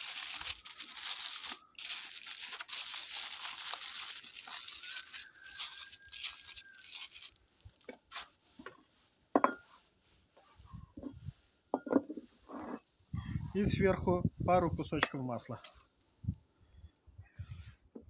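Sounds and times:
aluminium foil crinkling: 0.0 - 8.4.

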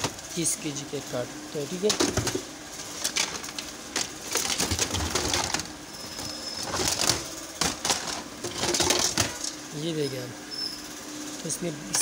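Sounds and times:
plastic toys clattering: 1.8 - 9.6.

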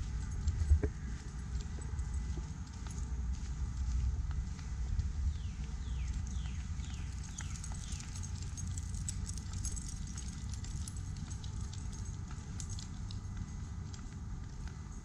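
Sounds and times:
footsteps on pavement: 0.0 - 15.0.

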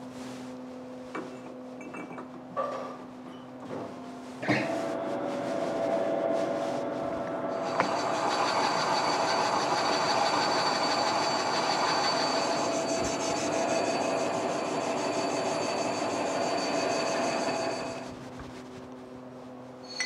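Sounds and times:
metal lathe hum: 4.6 - 18.1
high whine: 4.8 - 18.3.

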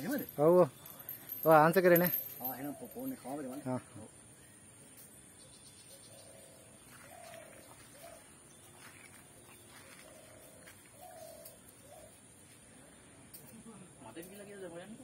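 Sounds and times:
dove cooing: 6.0 - 8.4, 9.6 - 12.3.

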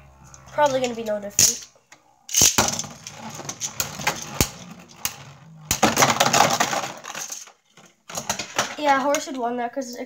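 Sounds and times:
spinning tops clashing: 2.3 - 7.5
spinning tops whirring and scraping: 2.3 - 7.5.

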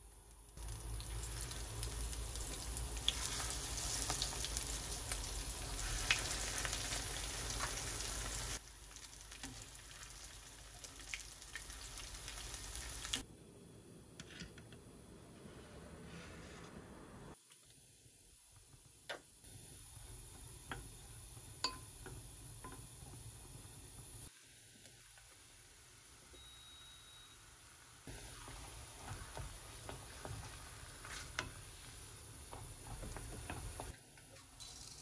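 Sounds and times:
cutlets sizzling in oil: 0.0 - 13.2, 19.5 - 34.0.

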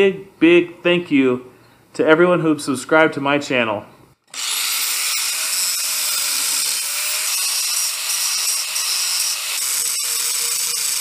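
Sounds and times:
angle grinder grinding metal: 4.3 - 11.0.

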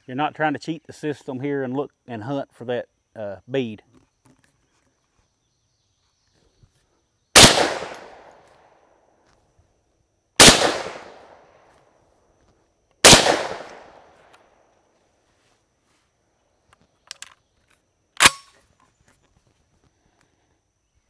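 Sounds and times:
shotgun shots: 7.4 - 8.4, 10.4 - 11.5, 13.0 - 14.2.

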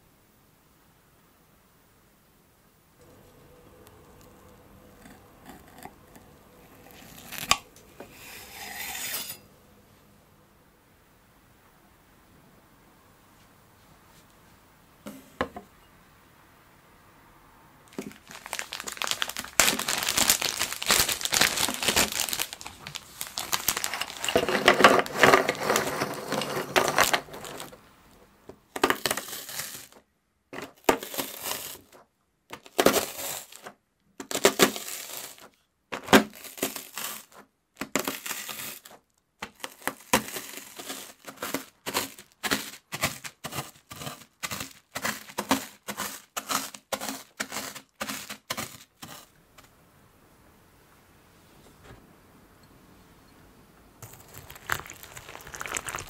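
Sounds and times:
plastic bag crinkling: 3.0 - 8.7, 17.9 - 28.2, 28.8 - 30.0, 30.6 - 32.0, 32.6 - 49.3, 54.0 - 56.0
rolling pin crushing biscuits: 3.0 - 9.5, 17.9 - 27.8, 28.5 - 30.0, 30.6 - 49.7, 54.0 - 56.0.

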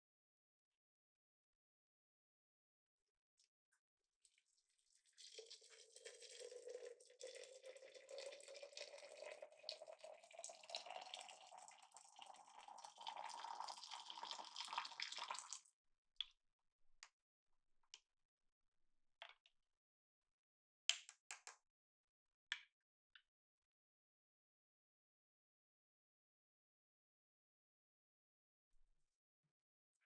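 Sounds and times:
water pouring into pitcher: 4.3 - 15.7.

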